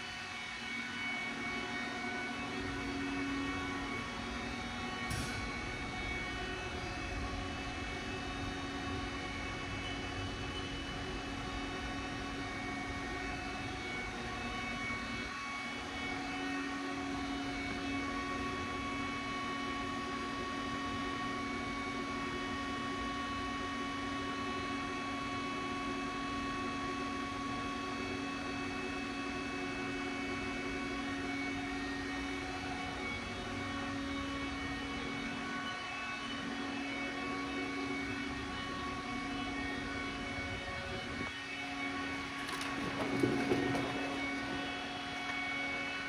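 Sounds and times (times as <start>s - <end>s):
machinery hum and whine: 0.0s - 46.0s.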